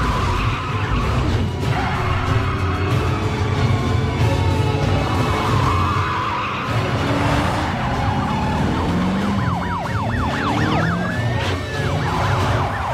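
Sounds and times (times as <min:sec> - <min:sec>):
police siren yelping: 0:04.9 - 0:12.9.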